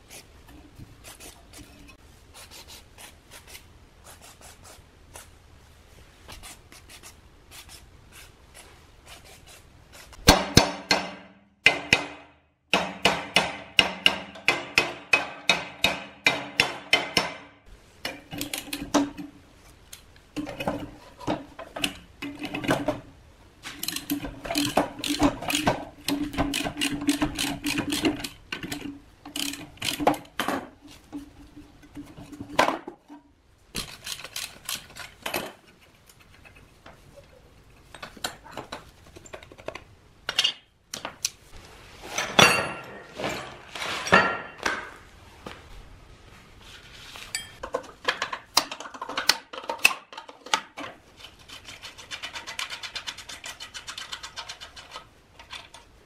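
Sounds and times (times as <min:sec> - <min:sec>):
metal tools clinking: 0:42.1 - 0:44.9, 0:47.3 - 0:47.8.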